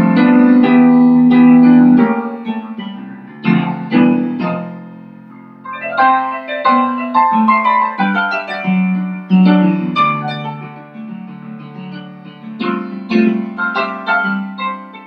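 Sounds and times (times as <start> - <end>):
keyboard-like melody: 0.0 - 15.0.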